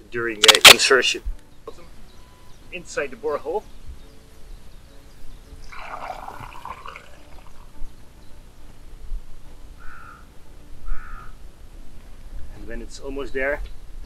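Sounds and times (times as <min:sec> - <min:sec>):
water gurgling and splashing: 0:05.7 - 0:07.6.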